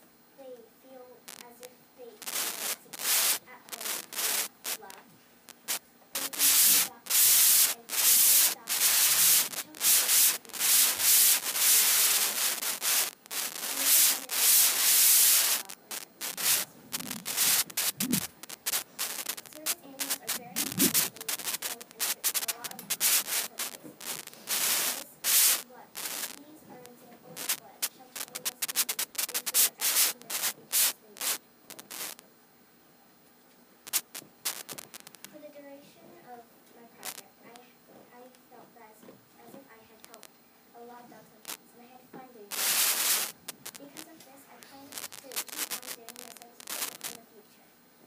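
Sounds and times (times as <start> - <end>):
loud rubbing and scraping: 16.2 - 19.4, 20.0 - 26.3.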